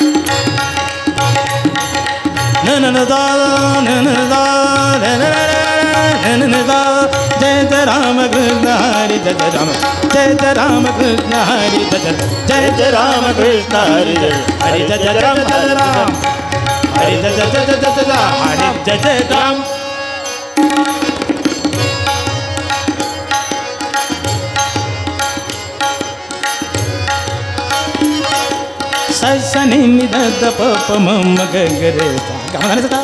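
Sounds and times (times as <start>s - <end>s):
tabla: 0.0s - 33.0s
man singing: 2.4s - 20.2s, 29.0s - 33.0s.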